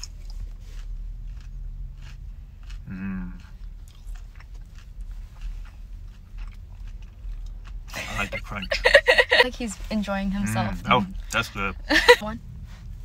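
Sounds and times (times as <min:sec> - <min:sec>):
crunchy chewing: 0:00.0 - 0:08.6
person humming: 0:02.9 - 0:03.4.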